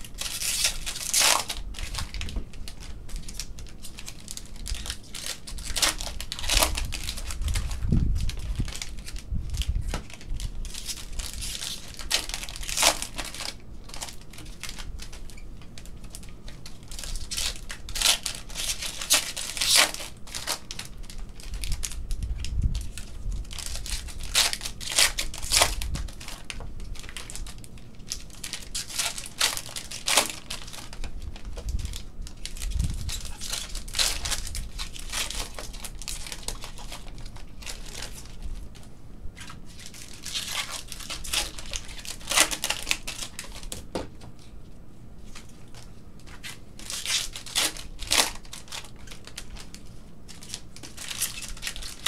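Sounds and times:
card pack wrappers tearing: 0:00.0 - 0:44.5, 0:45.3 - 0:52.0.

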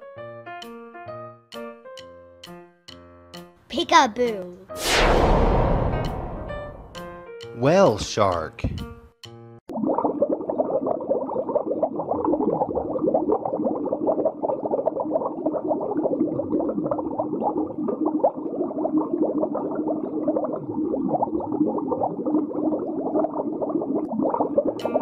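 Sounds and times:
slow downward swoops: 0:04.8 - 0:07.1
underwater bubbling and gurgling: 0:09.7 - 0:25.0.

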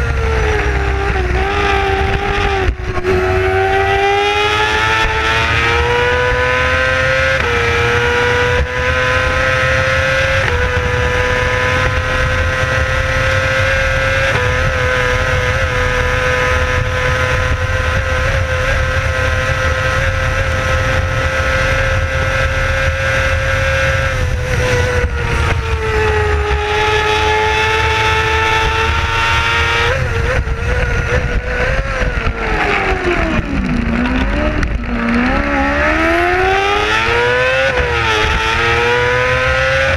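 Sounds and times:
racing engine at high revs: 0:00.0 - 0:39.9.

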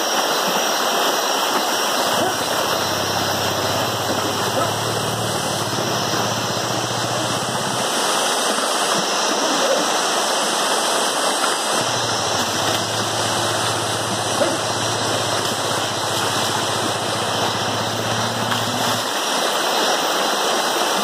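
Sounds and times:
stream running over rocks: 0:00.0 - 0:21.0
low steady hum: 0:02.0 - 0:07.9, 0:11.8 - 0:19.2.

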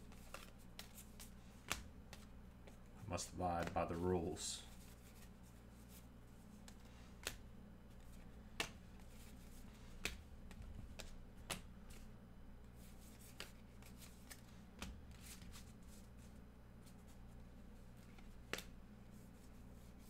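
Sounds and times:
cards flipped with sharp clicks: 0:00.0 - 0:02.8, 0:06.6 - 0:12.0, 0:13.1 - 0:15.7, 0:18.0 - 0:18.7.

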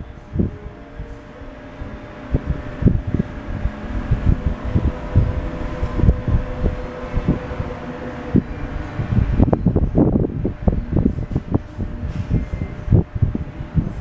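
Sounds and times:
low thumps: 0:00.0 - 0:14.0.

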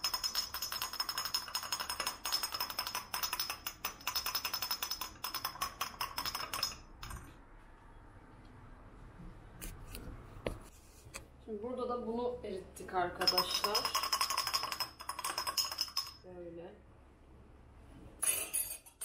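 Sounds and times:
teaspoon clinking against glass: 0:13.2 - 0:16.2.

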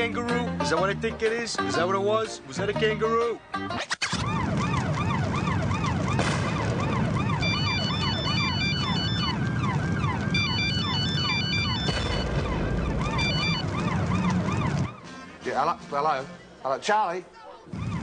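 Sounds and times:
emergency vehicle siren wailing: 0:04.0 - 0:15.5, 0:17.6 - 0:18.0
low rumble of fire: 0:04.2 - 0:15.0
mobile phone ringing: 0:07.4 - 0:09.4, 0:10.4 - 0:12.4, 0:13.2 - 0:13.7.

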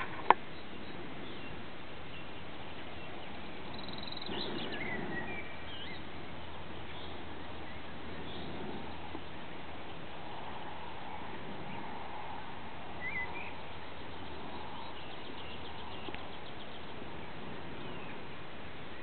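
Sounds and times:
steady outdoor hiss: 0:00.0 - 0:19.0
whistled bird calls: 0:13.0 - 0:13.6.

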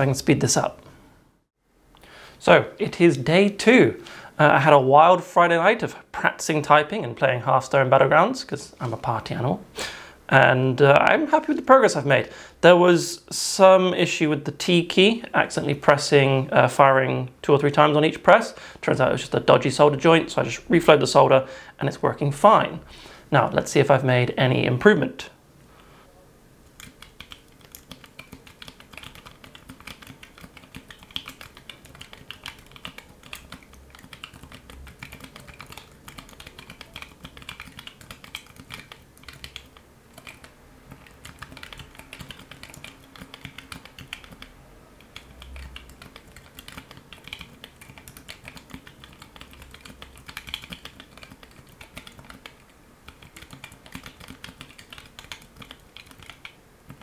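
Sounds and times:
fast typing on mechanical keyboard: 0:26.8 - 0:57.0.

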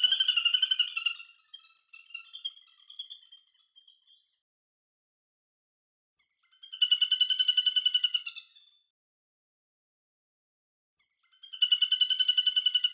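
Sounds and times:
bird high rapid trilling call: 0:00.0 - 0:01.3.

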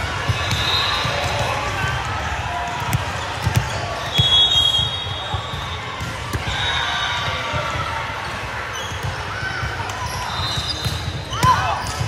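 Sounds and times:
chatter of spectators and players: 0:00.0 - 0:12.0
volleyballs thudding: 0:00.2 - 0:04.4.

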